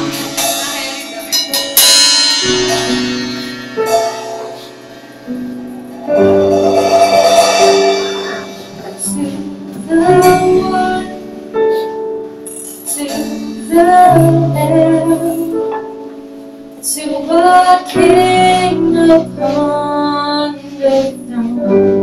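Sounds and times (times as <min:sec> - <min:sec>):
percussion hits: 0:00.0 - 0:11.1
worship band playing: 0:00.0 - 0:22.0
woman singing into a microphone: 0:08.8 - 0:12.0, 0:12.8 - 0:16.1, 0:16.8 - 0:22.0.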